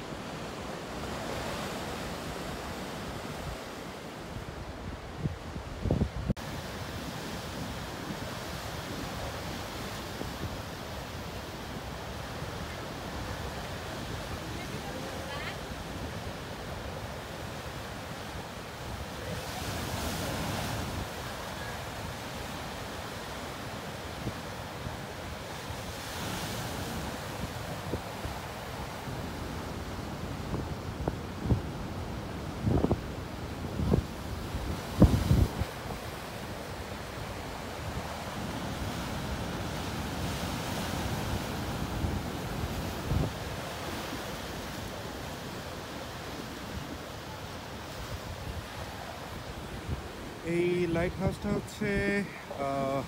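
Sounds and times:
wind rumble on microphone: 0:04.4 - 0:10.7, 0:26.8 - 0:36.2.

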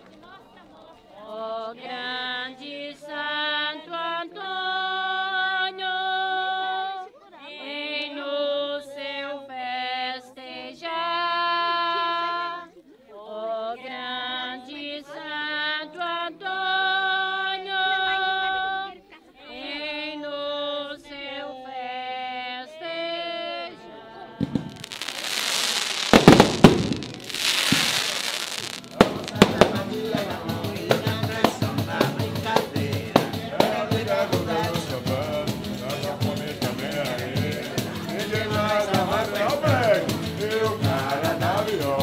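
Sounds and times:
woman singing unaccompanied: 0:00.2 - 0:28.0.

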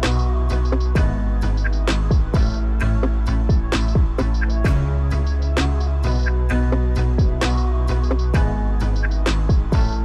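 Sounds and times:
electronic music: 0:00.0 - 0:10.0
sustained bass notes: 0:00.0 - 0:10.0
deep kick drums: 0:01.0 - 0:01.2, 0:02.0 - 0:05.0, 0:07.2 - 0:07.4, 0:09.5 - 0:10.0.

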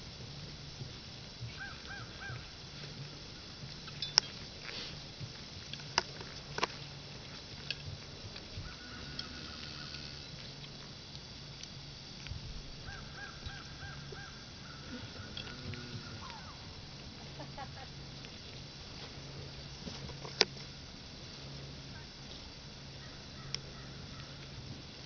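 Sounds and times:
low outdoor background: 0:00.0 - 0:25.0
bird calling: 0:01.5 - 0:02.6, 0:08.6 - 0:10.4, 0:12.8 - 0:16.8, 0:23.0 - 0:24.6.

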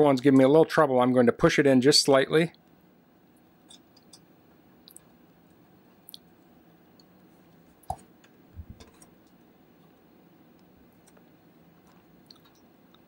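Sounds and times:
dull thumps: 0:07.9 - 0:09.0.

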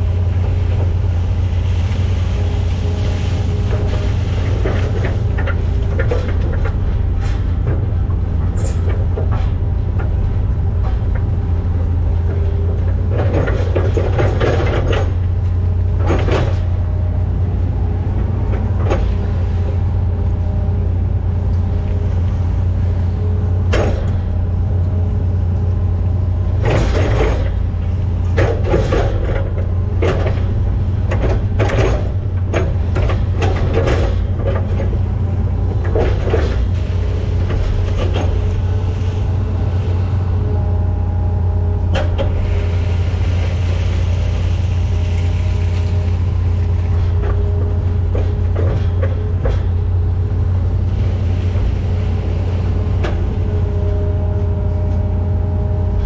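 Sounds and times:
excavator diesel engine running: 0:00.0 - 0:56.0
hydraulic whine: 0:00.0 - 0:56.0
metal clanks and knocks: 0:03.6 - 0:16.9, 0:26.5 - 0:38.9, 0:41.8 - 0:42.7, 0:45.1 - 0:55.0.

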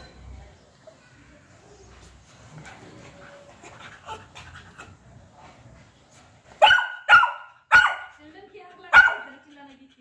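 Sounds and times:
dog barking: 0:06.6 - 0:08.2, 0:08.9 - 0:09.3.

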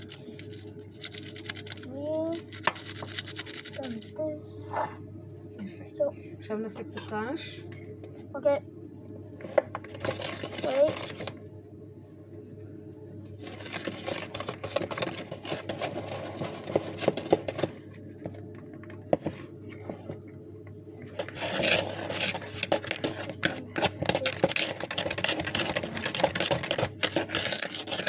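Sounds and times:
utensils scraping plastic bowl: 0:21.2 - 0:28.0.

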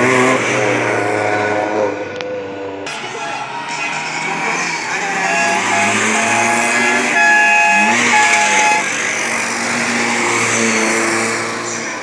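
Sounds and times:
engine rev: 0:00.0 - 0:02.6, 0:03.7 - 0:12.0
cars and scooters driving past: 0:00.0 - 0:12.0
horn toots: 0:04.8 - 0:09.0.

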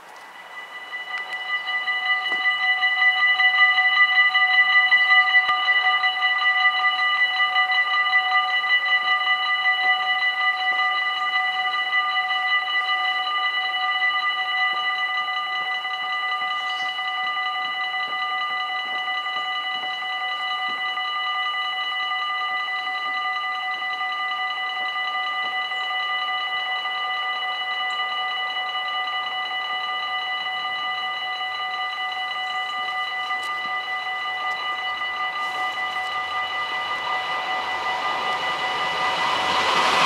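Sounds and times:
level crossing bells ringing: 0:00.0 - 0:17.5, 0:30.5 - 0:40.0.

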